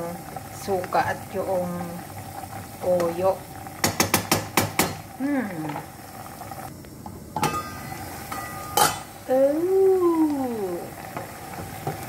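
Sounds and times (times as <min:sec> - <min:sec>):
wooden spoon tapping a pot: 0:03.8 - 0:05.1.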